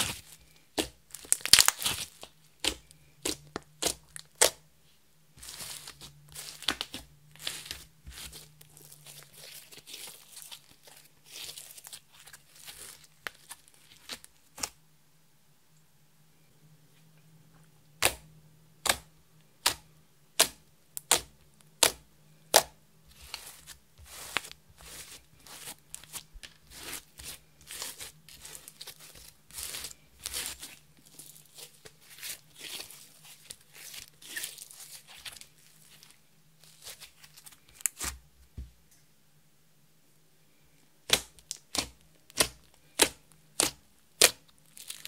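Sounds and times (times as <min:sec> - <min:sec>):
sticky slime crackles: 0:00.0 - 0:04.6, 0:05.4 - 0:14.8, 0:20.4 - 0:38.2, 0:41.0 - 0:45.0.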